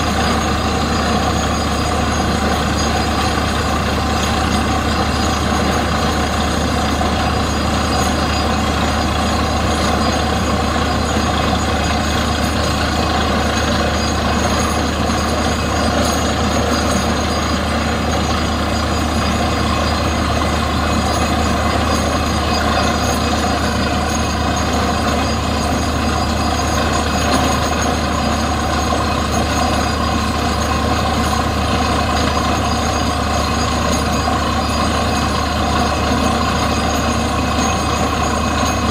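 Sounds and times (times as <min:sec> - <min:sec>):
drill working in hole: 0:00.0 - 0:38.9
drilling rig engine drone: 0:00.0 - 0:38.9.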